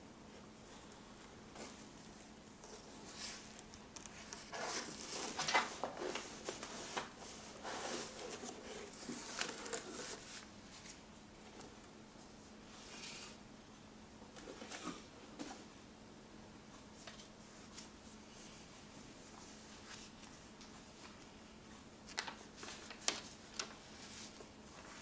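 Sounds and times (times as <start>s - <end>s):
cardboard rustling and scraping: 2.6s - 11.0s
paper rustling: 2.6s - 11.0s, 22.1s - 25.0s.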